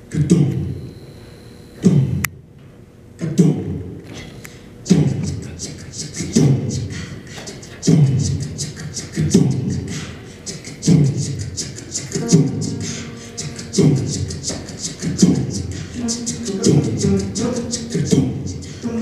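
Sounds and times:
vocal hi-hat ticks: 3.2 - 19.0
vocal percussion kick sound: 7.8 - 19.0
a cappella choir singing: 10.8 - 19.0.

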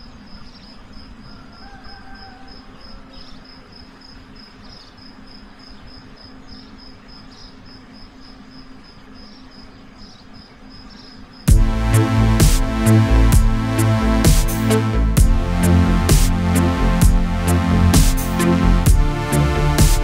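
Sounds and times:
crickets chirping: 0.0 - 11.5
electronic music with a beat: 11.5 - 20.0
low steady hum: 11.5 - 20.0.

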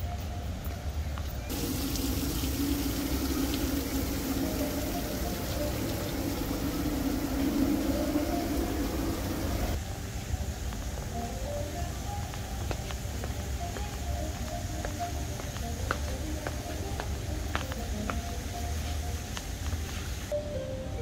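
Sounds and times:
running water rushing: 1.5 - 9.8.

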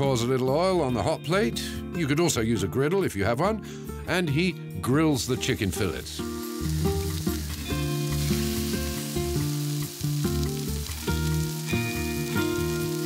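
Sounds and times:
background music with held notes: 0.0 - 13.0
chicken sizzling in hot oil: 5.8 - 13.0.

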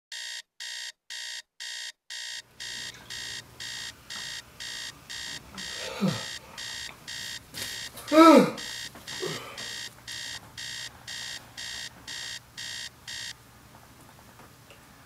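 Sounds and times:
alarm clock beeping: 0.1 - 13.4.

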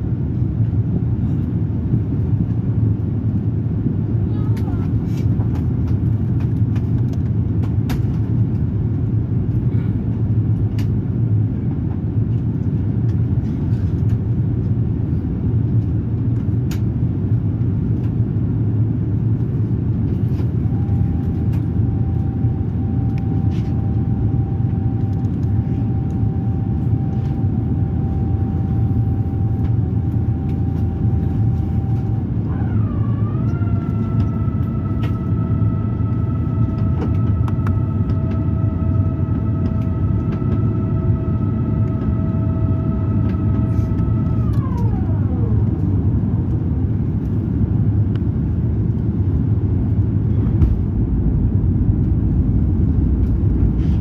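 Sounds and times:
airplane cabin rumble: 0.0 - 54.0
thin whine: 20.3 - 54.0.

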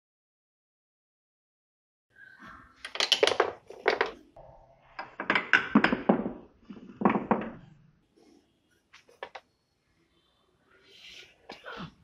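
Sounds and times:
metal parts handled: 2.8 - 4.3.

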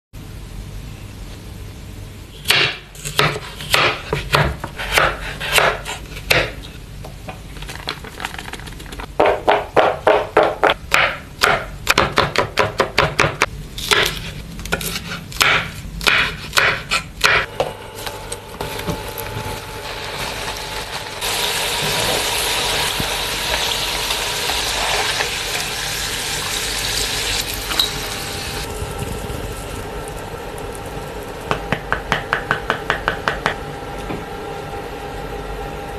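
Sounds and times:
knife chopping on cutting board: 2.4 - 6.7, 9.2 - 17.8.

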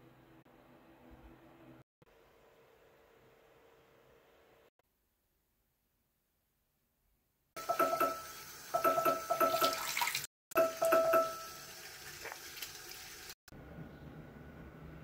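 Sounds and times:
ringing tone in water noise: 7.6 - 9.9, 10.6 - 11.7
tap water running into sink: 7.6 - 13.4.

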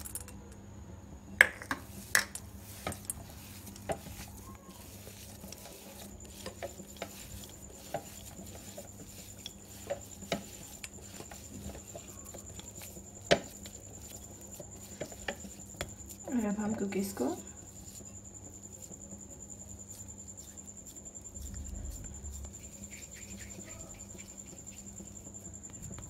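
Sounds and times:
hands kneading dough: 1.7 - 26.0.

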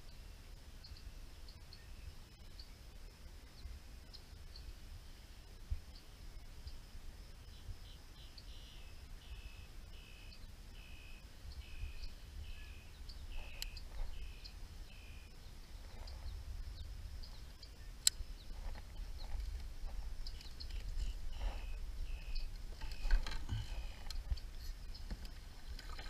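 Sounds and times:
wind rumble on microphone: 10.4 - 26.0.

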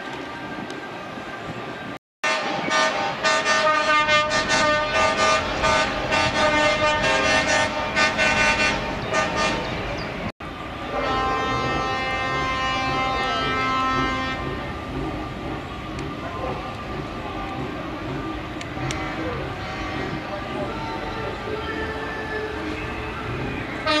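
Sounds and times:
truck air horn blasts: 2.2 - 9.8, 10.9 - 14.7, 18.8 - 20.2.

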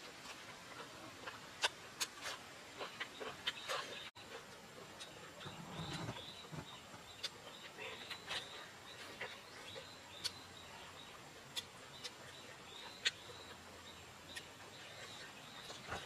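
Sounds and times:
faint bird chirps: 5.0 - 16.0
chewing clicks and lip smacks: 10.2 - 10.4, 11.5 - 12.4.

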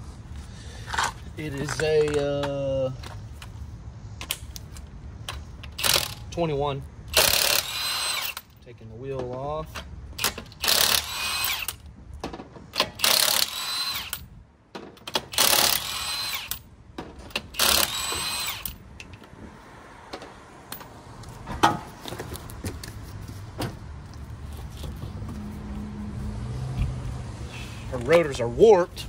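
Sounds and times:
power tool motor whine: 7.2 - 8.4, 13.0 - 14.2, 15.4 - 16.6, 17.6 - 18.8.

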